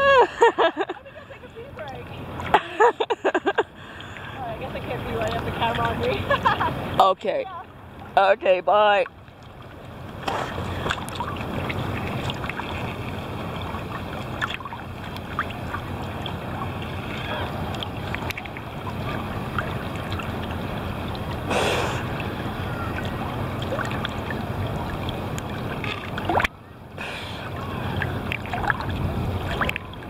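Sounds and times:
water sloshing and splashing: 0.0s - 30.0s.

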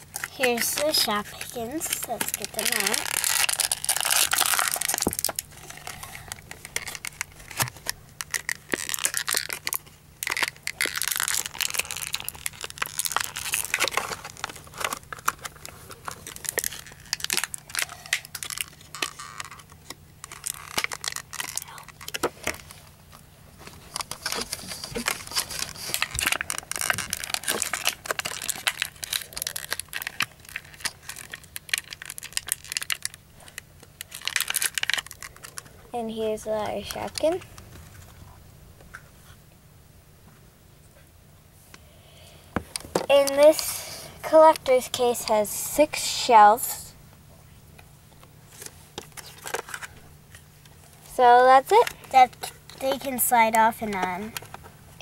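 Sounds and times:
plastic packaging crinkling: 0.0s - 35.8s, 36.5s - 38.3s, 48.2s - 55.0s.

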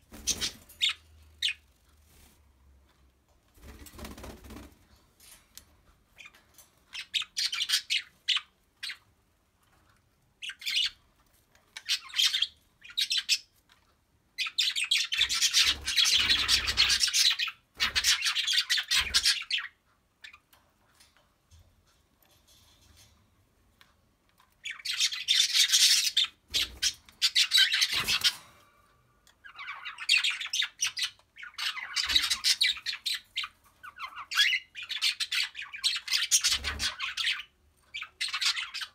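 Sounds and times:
cockatiels chirping and squawking: 0.1s - 2.2s, 6.2s - 9.0s, 11.7s - 13.5s, 14.4s - 20.5s, 24.6s - 28.4s, 29.4s - 38.9s.

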